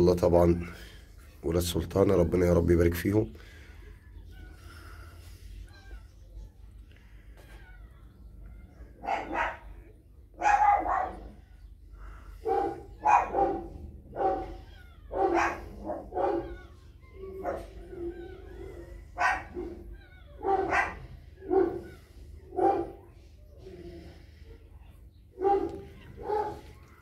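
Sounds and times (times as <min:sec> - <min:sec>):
dog whining: 0:03.8 - 0:27.0
dog barking: 0:09.0 - 0:09.8, 0:10.4 - 0:11.4, 0:12.4 - 0:18.5, 0:19.1 - 0:23.1, 0:25.4 - 0:26.8.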